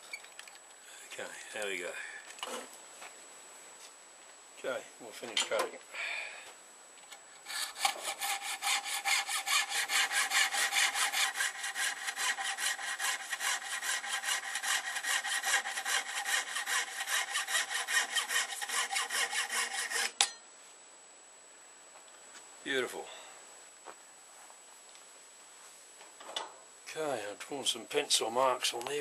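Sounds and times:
hand saw cutting antler: 0:07.4 - 0:20.3.

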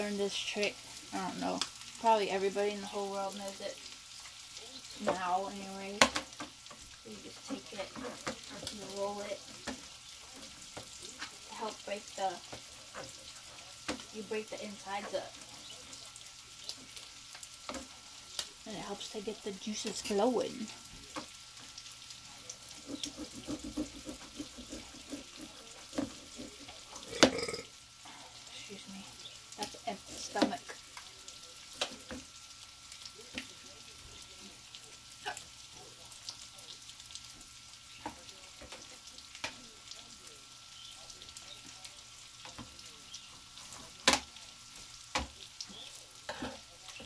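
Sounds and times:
fish sizzling in a pan: 0:00.0 - 0:47.0
knife sawing through lime: 0:22.8 - 0:25.6.

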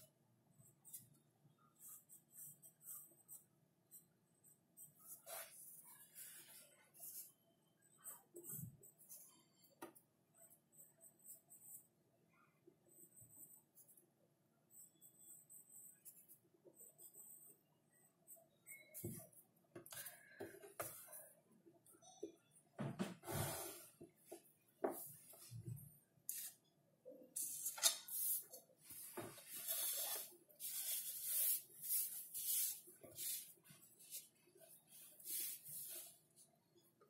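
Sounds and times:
pencil scratching on paper: 0:01.8 - 0:07.4, 0:10.4 - 0:11.9, 0:12.9 - 0:14.0, 0:14.7 - 0:17.6, 0:27.4 - 0:36.4.

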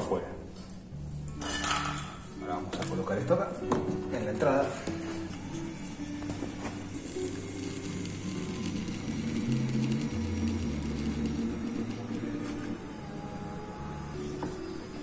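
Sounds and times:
electric fuel pump whirring: 0:02.6 - 0:15.0.

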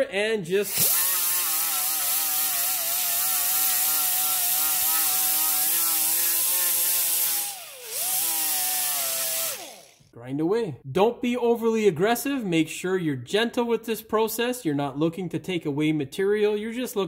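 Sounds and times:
rotary tool grinding metal: 0:00.6 - 0:10.1.

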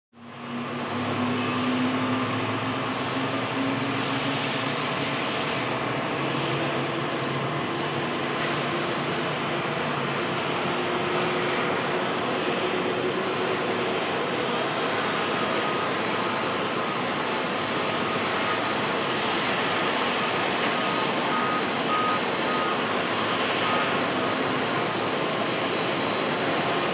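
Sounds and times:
jet engines on takeoff roll: 0:00.2 - 0:26.9.

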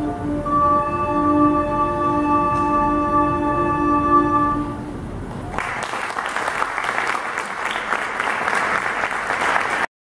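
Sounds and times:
recorder ensemble chord: 0:00.0 - 0:04.9
audience applause: 0:05.5 - 0:09.9.

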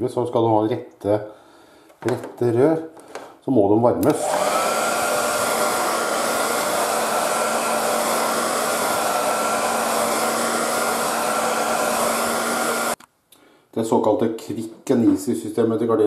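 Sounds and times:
hair dryer running: 0:04.0 - 0:13.0.

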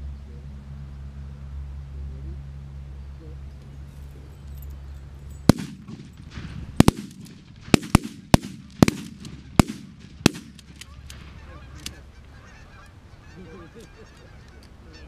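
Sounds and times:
shotgun blasts: 0:05.5 - 0:12.0
geese honking: 0:08.8 - 0:15.0.

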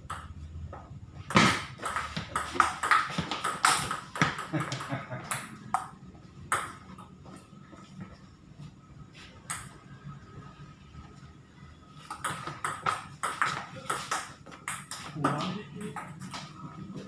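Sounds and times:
ping-pong ball bouncing on table: 0:00.0 - 0:07.0, 0:12.1 - 0:16.6
ping-pong ball hitting bats: 0:00.0 - 0:07.1, 0:09.4 - 0:09.8, 0:12.0 - 0:16.8.

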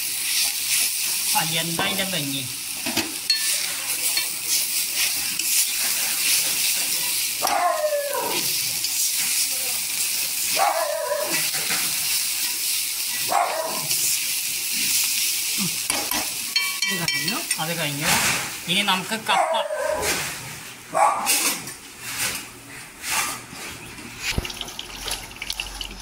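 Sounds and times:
food sizzling in pan: 0:00.0 - 0:19.3, 0:24.1 - 0:26.0
spatula stirring: 0:03.3 - 0:07.5
dog barking: 0:07.4 - 0:08.5, 0:10.5 - 0:11.4, 0:13.2 - 0:14.0, 0:19.3 - 0:20.2, 0:20.9 - 0:21.4.

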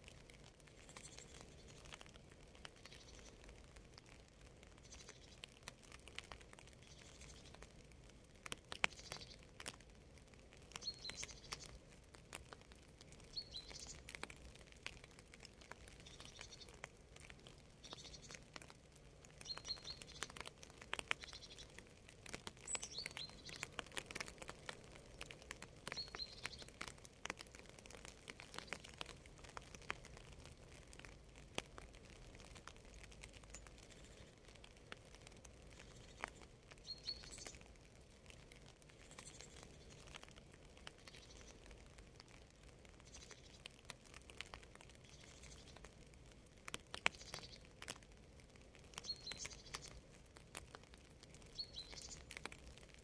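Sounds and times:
raindrops dripping and pattering: 0:00.0 - 0:53.0
bird chirping: 0:00.8 - 0:02.0, 0:10.7 - 0:11.8, 0:13.2 - 0:14.1, 0:16.0 - 0:16.8, 0:17.8 - 0:18.4, 0:19.4 - 0:20.5, 0:21.1 - 0:21.8, 0:22.6 - 0:23.7, 0:25.9 - 0:26.8, 0:35.7 - 0:37.6, 0:41.0 - 0:41.6, 0:49.0 - 0:50.0, 0:51.5 - 0:52.3.

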